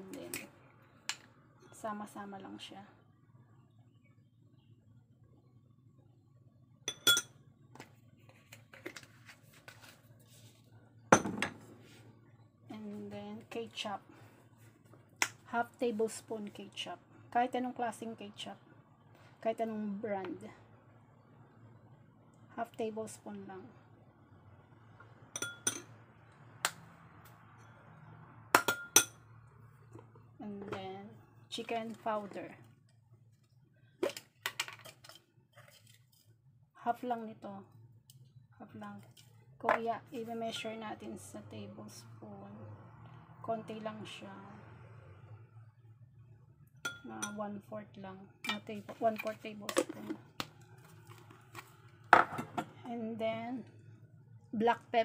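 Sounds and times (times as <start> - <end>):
metal spoon clinking ceramic bowl: 6.9 - 7.3, 25.4 - 25.9, 28.6 - 29.2, 46.8 - 47.4.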